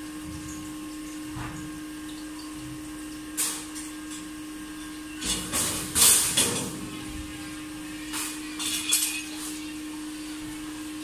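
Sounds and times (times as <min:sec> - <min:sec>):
steady hum: 0:00.0 - 0:11.0
metal sheet clanks and knocks: 0:05.2 - 0:07.0.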